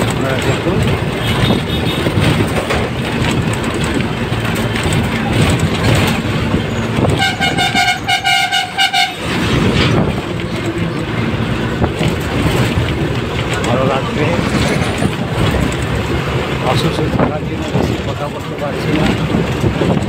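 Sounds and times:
road noise: 0.0s - 20.0s
vehicle horn short toots: 7.1s - 9.2s.

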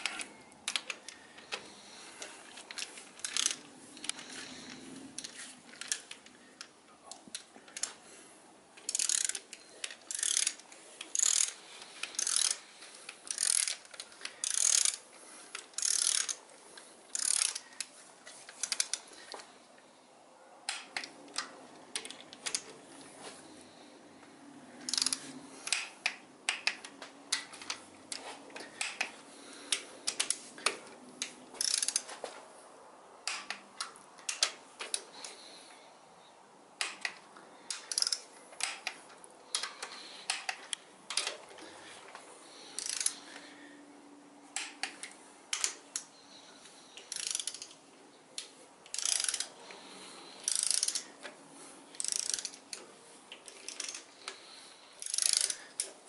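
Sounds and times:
torque wrench ratchet clicking: 3.2s - 3.6s, 8.9s - 9.5s, 10.1s - 12.6s, 13.3s - 13.8s, 14.4s - 15.0s, 15.8s - 16.4s, 17.1s - 17.6s, 24.9s - 25.9s, 31.6s - 32.0s, 37.7s - 38.8s, 42.8s - 43.2s, 47.1s - 47.8s, 48.9s - 49.5s, 50.4s - 51.0s, 52.0s - 52.6s, 53.5s - 54.1s, 55.0s - 55.8s.

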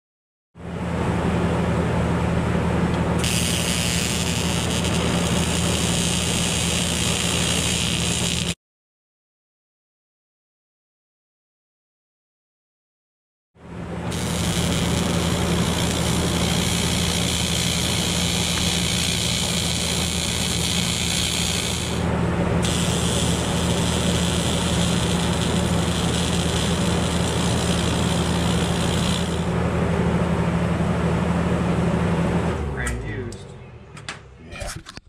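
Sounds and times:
welding machine low hum: 0.7s - 8.6s, 13.8s - 33.5s
welding arc buzzing and hissing: 3.0s - 8.6s, 14.0s - 29.6s.

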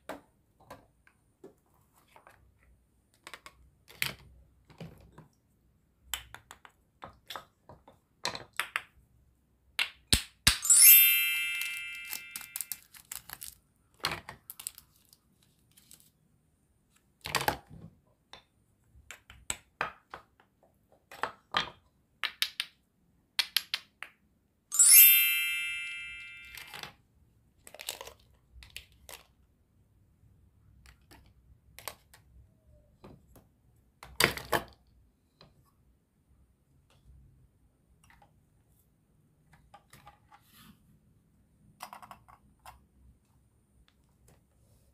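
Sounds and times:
bright ringing chime: 10.6s - 12.8s, 24.7s - 26.8s.

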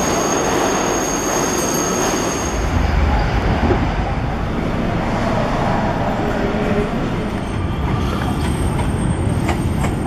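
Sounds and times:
train wheels squealing: 0.0s - 3.6s, 7.3s - 10.0s
subway train rumbling: 0.0s - 10.0s.

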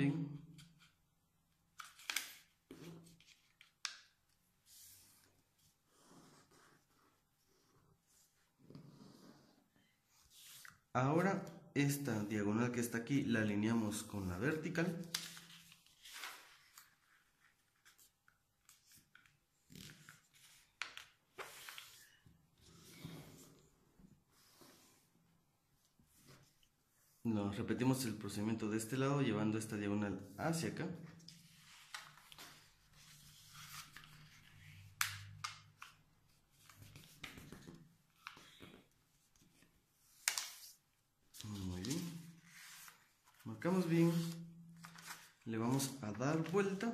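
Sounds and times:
paper being folded and creased: 1.8s - 7.2s, 15.0s - 22.2s, 31.2s - 46.9s.

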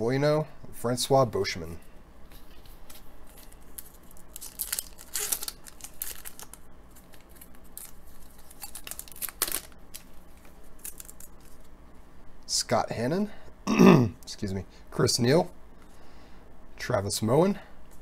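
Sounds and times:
card pack wrapper tearing: 2.9s - 11.7s.

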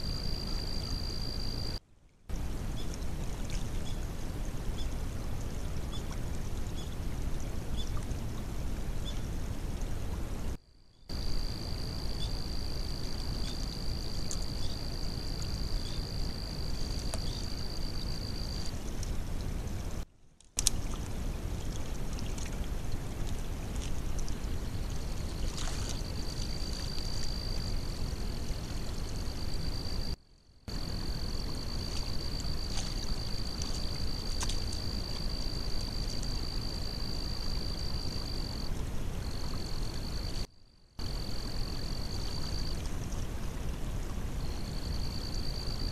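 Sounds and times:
water running over dam: 11.1s - 45.9s.

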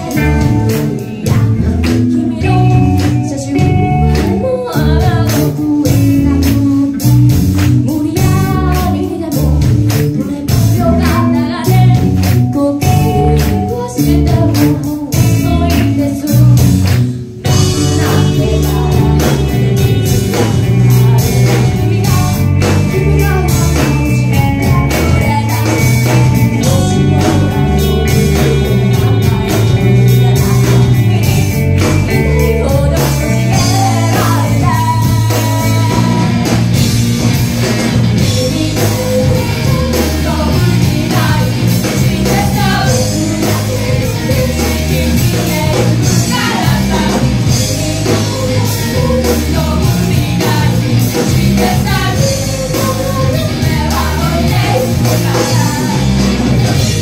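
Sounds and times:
woman singing: 0.0s - 36.9s, 38.1s - 57.0s
drums: 0.0s - 57.0s
electric bass: 0.0s - 57.0s
electric guitar: 0.0s - 57.0s.

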